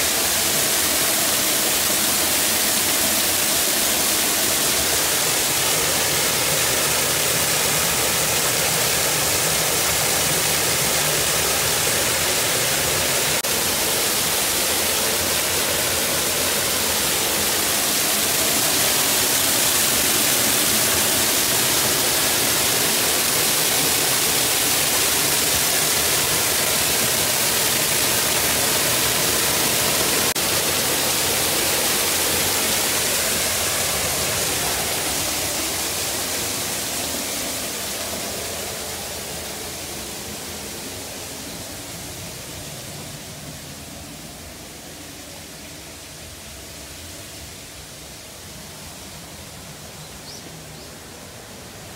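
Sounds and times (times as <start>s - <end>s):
waterfall splashing onto rocks: 0.0s - 43.8s.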